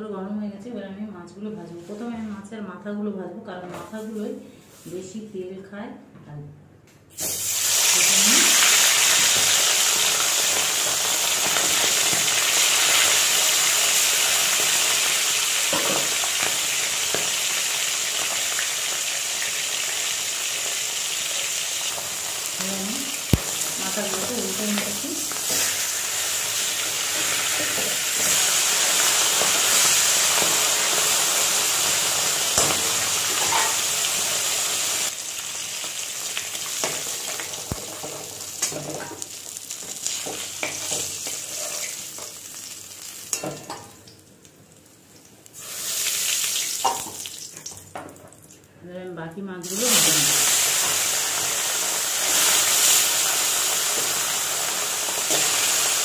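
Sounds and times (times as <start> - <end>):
fish sizzling in hot oil: 7.2 - 43.8, 44.8 - 47.8, 49.6 - 56.0
metal spatula scraping a pan: 40.0 - 42.0.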